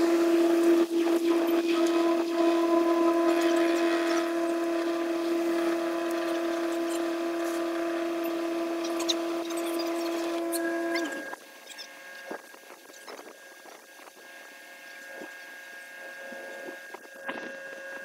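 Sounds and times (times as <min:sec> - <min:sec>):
winch whining: 0:00.0 - 0:18.0.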